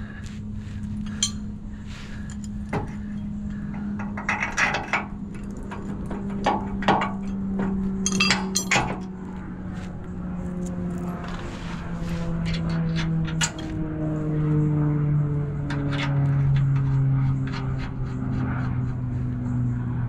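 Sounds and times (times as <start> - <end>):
steady low hum: 0.0 - 20.0
metal clinks and knocks: 1.0 - 9.4.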